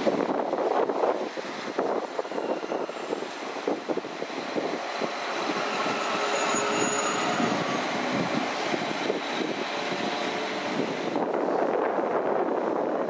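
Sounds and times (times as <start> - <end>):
train wheels rumbling: 1.6 - 11.8.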